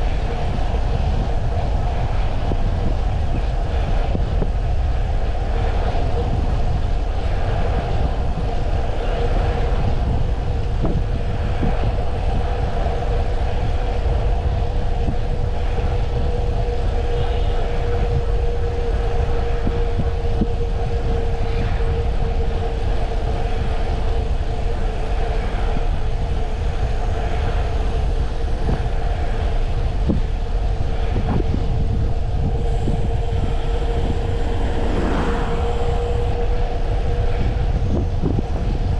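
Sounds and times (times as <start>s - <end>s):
steady droning hum: 0.0s - 38.9s
wind buffeting microphone: 0.0s - 38.9s.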